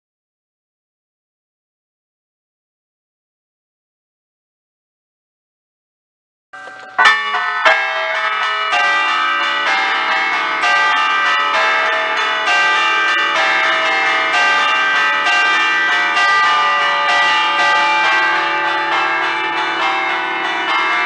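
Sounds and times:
church bells chiming: 0:06.6 - 0:21.0.

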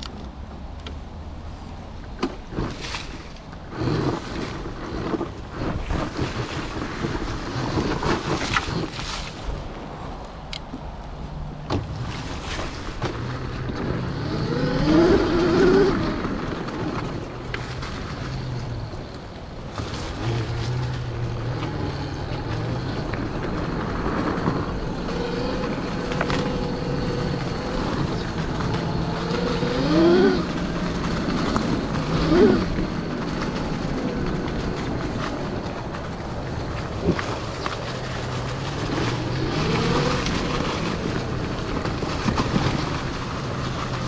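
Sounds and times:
electric motorbike motor whining: 0:03.5 - 0:09.6, 0:12.9 - 0:44.0.

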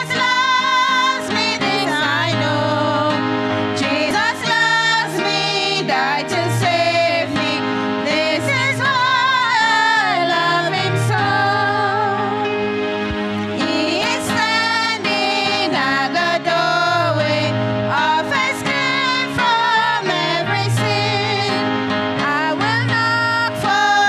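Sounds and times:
women singing a hymn: 0:00.0 - 0:12.7, 0:13.4 - 0:24.0.

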